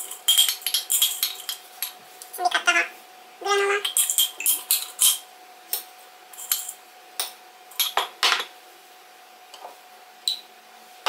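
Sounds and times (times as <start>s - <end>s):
spoon clinking against glass jar: 0.0s - 1.6s, 3.8s - 5.2s, 6.4s - 6.8s.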